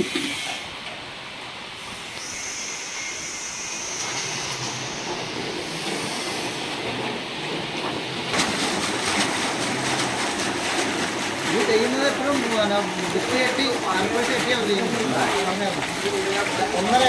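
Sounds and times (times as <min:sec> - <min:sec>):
water splashing in rotating drum: 0:01.0 - 0:17.0.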